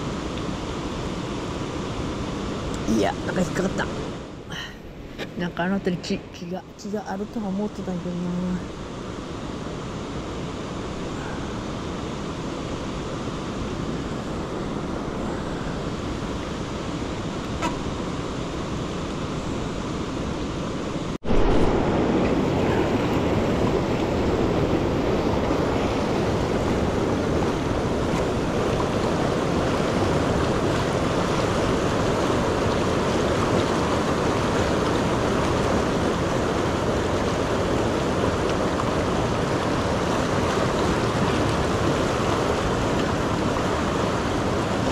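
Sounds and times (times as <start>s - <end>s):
river current rushing: 8.7s - 44.9s.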